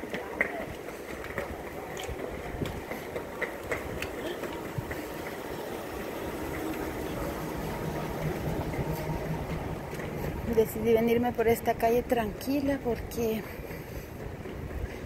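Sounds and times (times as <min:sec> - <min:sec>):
footsteps on paving stones: 0:00.0 - 0:07.0
truck engine rumbling: 0:01.8 - 0:15.0.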